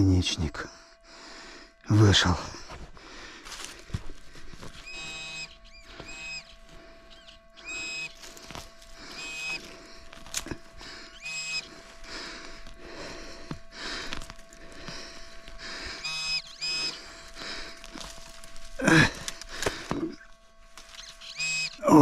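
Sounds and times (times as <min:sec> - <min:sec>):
soil scraping and rustling: 0:02.7 - 0:07.1, 0:07.9 - 0:11.1, 0:11.7 - 0:22.0
metal detector beeps: 0:04.7 - 0:18.1, 0:20.8 - 0:22.0.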